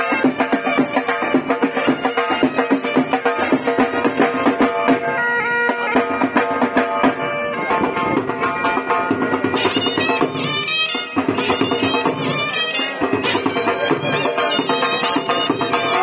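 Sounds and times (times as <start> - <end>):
bagpipe reedy melody: 0.0 - 16.0
drum beating a rhythm: 0.0 - 16.0.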